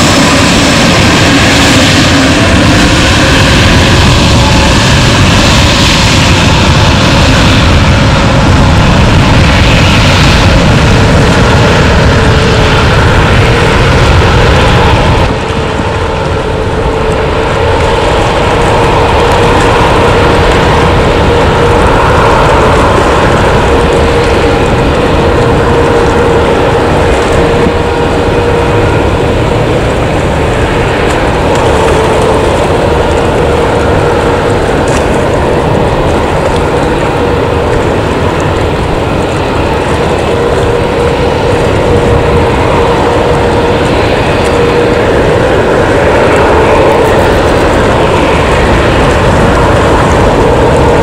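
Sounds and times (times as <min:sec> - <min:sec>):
jet engines at takeoff: 0:00.0 - 0:51.0.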